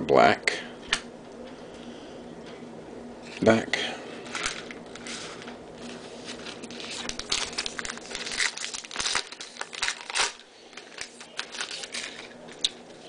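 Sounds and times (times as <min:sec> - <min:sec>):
wrapper crinkling and tearing: 0:04.3 - 0:12.8.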